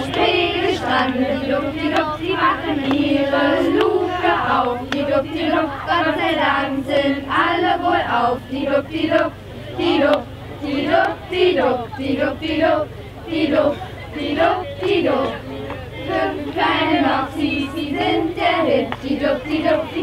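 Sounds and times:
group of voices singing: 0:00.0 - 0:20.0.

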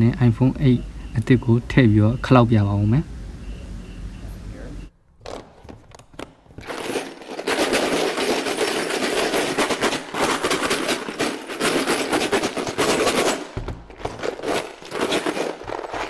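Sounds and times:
bolts and screws rattling in plastic box: 0:05.2 - 0:16.0.

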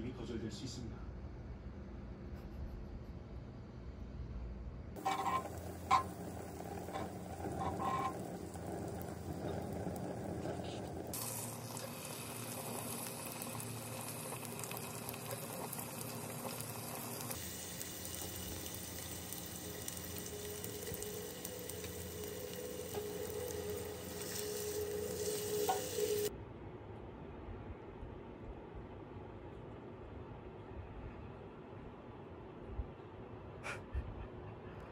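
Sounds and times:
beef frying: 0:05.0 - 0:26.3
butter sizzling in a pot: 0:05.0 - 0:26.3.

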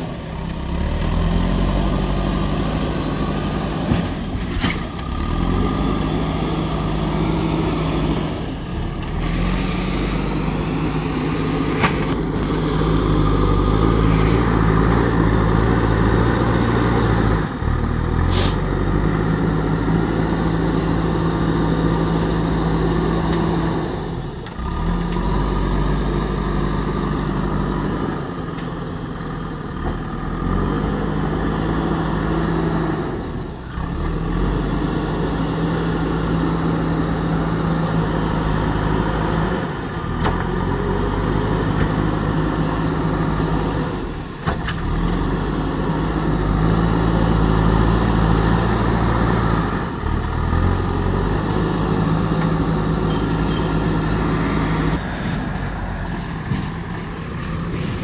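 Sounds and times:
diesel engine running: 0:00.0 - 0:58.0
tractor engine running: 0:00.0 - 0:58.0.

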